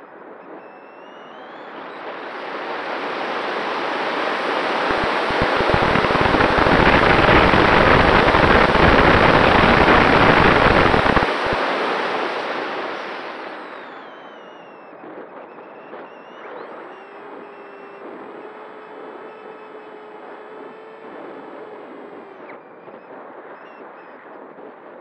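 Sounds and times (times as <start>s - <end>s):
wind rushing over microphone: 1.8s - 14.2s.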